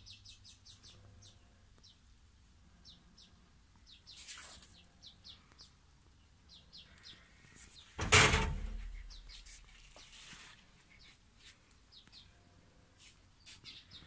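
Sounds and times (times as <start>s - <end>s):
small birds chirping: 0.0s - 14.0s
loud bump: 8.0s - 9.1s.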